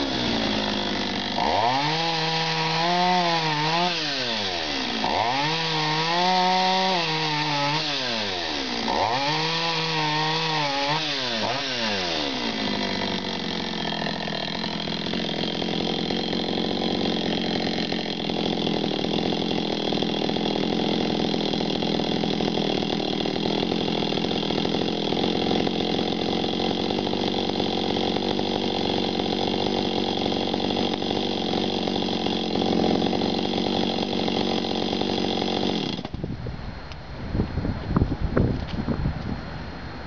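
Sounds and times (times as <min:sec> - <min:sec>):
chainsaw idling: 0:00.0 - 0:36.2
chainsaw engine cutting out: 0:00.0 - 0:36.3.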